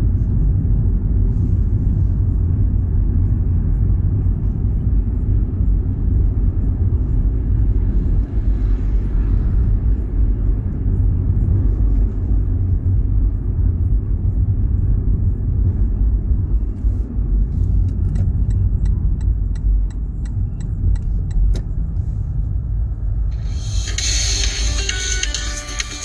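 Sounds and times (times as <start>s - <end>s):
car engine and road noise: 0.0s - 26.0s
regular ticking: 17.9s - 21.6s
music: 23.3s - 26.0s.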